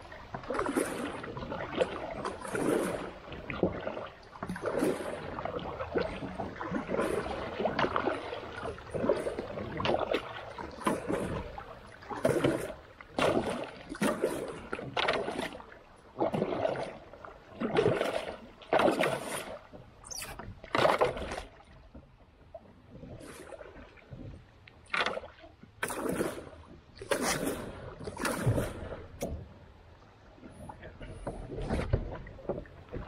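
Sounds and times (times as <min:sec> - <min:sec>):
splashing strokes in water: 0:00.0 - 0:21.5, 0:24.9 - 0:29.0.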